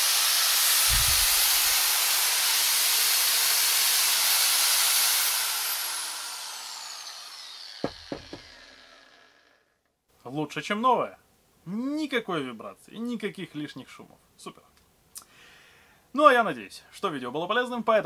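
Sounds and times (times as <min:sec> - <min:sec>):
angle grinder whining: 0:00.0 - 0:09.7.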